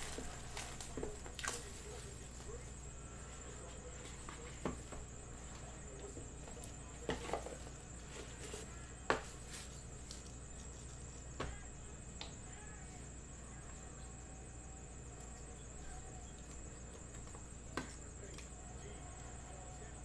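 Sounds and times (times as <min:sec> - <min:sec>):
faint room noise: 0:00.0 - 0:20.0.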